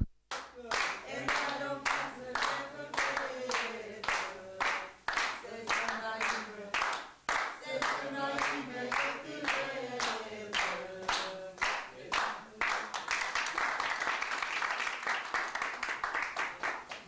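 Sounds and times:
rhythmic hand-clapping: 0:00.0 - 0:17.0
applause: 0:00.3 - 0:17.0
group singing: 0:00.6 - 0:12.9.

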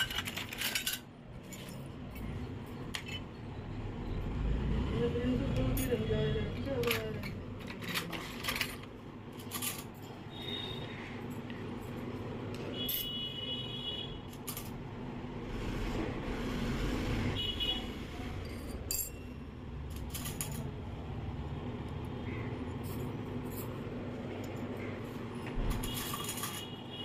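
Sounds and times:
small metal spoons clinking: 0:18.4 - 0:20.9, 0:25.7 - 0:26.8.

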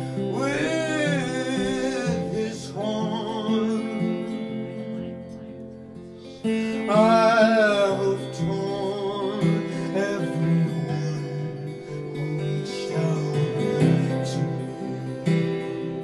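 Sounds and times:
man singing: 0:00.0 - 0:05.4, 0:06.3 - 0:16.0
acoustic guitar strumming: 0:00.0 - 0:16.0.

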